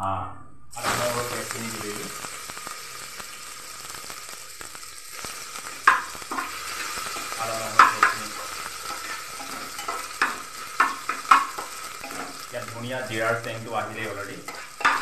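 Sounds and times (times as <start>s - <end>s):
spices sizzling in hot oil: 0.7s - 15.0s
steel spatula scraping pot: 5.9s - 12.5s, 14.4s - 15.0s.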